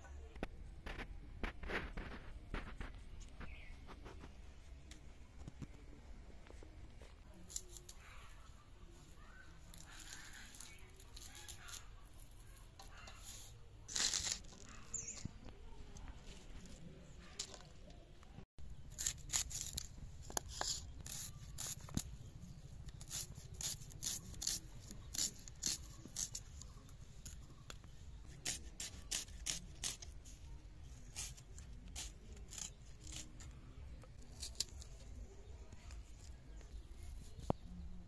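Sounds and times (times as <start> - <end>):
onion skin tearing: 9.7 - 13.2, 13.9 - 15.0, 18.8 - 22.1, 22.8 - 26.5, 28.3 - 30.4, 31.0 - 35.1
knife cutting onions: 22.9 - 26.5, 28.3 - 30.4, 31.0 - 35.0.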